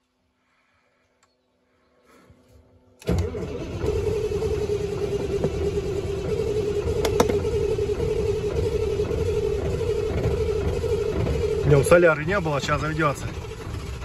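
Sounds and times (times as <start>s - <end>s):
truck diesel engine starting: 3.0s - 14.0s.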